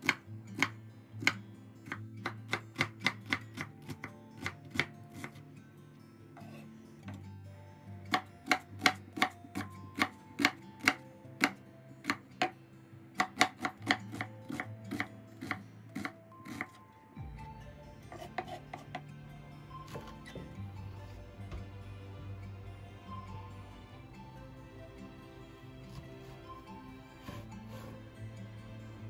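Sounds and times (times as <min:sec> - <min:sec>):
knife chopping on wooden board: 0:00.0 - 0:05.4, 0:08.1 - 0:12.6, 0:13.2 - 0:16.8, 0:18.1 - 0:19.0.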